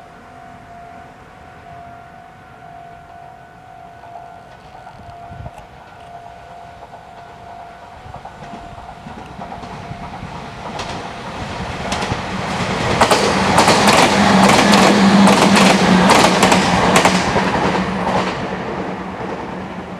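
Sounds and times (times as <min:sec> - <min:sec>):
low steady hum: 0:00.0 - 0:10.3
electric train passing: 0:00.0 - 0:19.9
wheels clacking over rail joints: 0:04.0 - 0:19.9.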